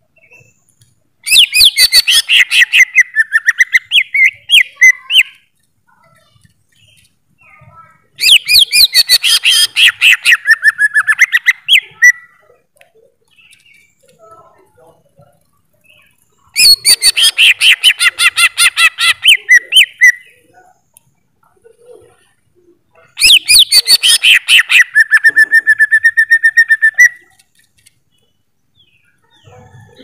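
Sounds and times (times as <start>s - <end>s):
bird singing whistled notes: 23.2s - 27.4s.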